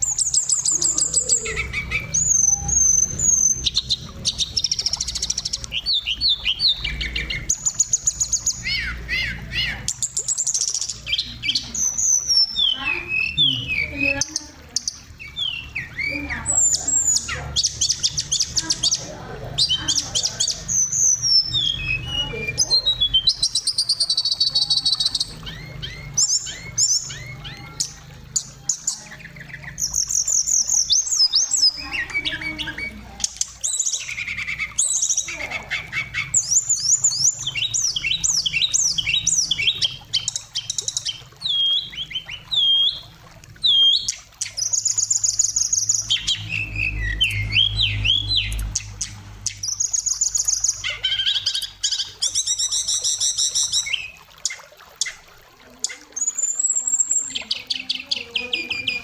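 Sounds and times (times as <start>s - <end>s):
bird singing whistles and trills: 0.0s - 59.0s.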